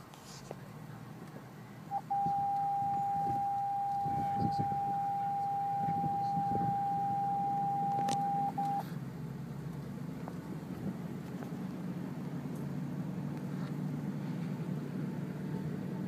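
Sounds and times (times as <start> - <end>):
car engine low hum: 0.0 - 16.0
electronic warning beep: 1.9 - 8.8.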